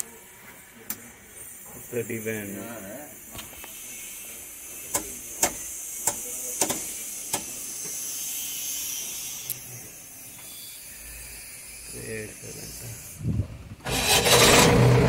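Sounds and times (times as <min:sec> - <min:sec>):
sharp clicks and knocks: 0:04.9 - 0:07.5.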